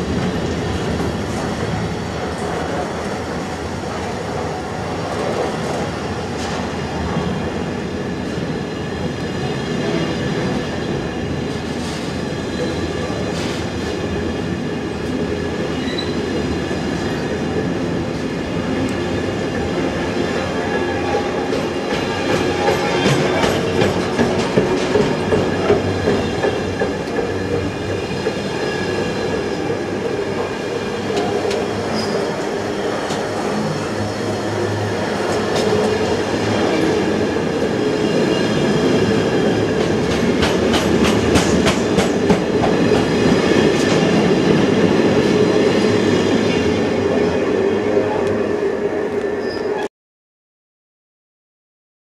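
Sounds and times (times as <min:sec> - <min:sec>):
freight train wheels clicking: 0:21.5 - 0:29.7, 0:39.5 - 0:44.5.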